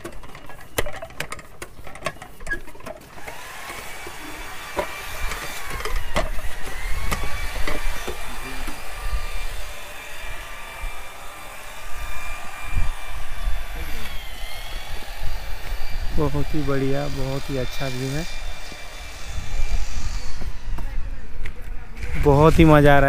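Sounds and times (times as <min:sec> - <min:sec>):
metal prayer wheels clattering: 0:00.0 - 0:03.1
prayer wheels squeaking: 0:00.0 - 0:08.8.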